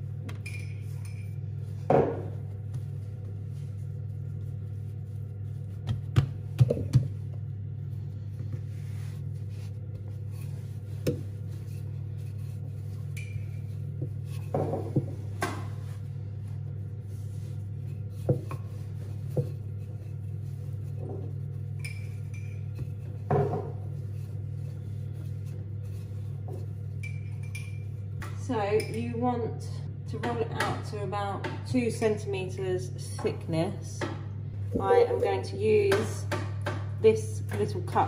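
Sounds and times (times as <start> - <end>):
steady low hum: 0.0 - 38.0
dough patted and rolled on board: 1.8 - 7.5, 8.4 - 16.0, 17.3 - 21.6, 35.8 - 38.0.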